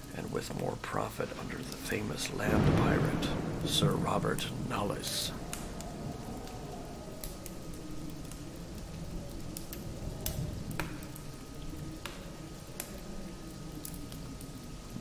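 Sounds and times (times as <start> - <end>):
faint steady hum: 0.0 - 15.0
sharp crackles: 0.0 - 15.0
steady hiss: 0.0 - 15.0
low rumble: 1.4 - 12.0.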